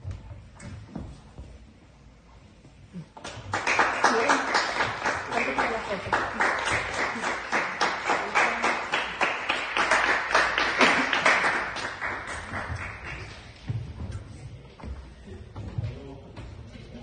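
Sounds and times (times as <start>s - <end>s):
audience applauding: 3.2s - 13.6s.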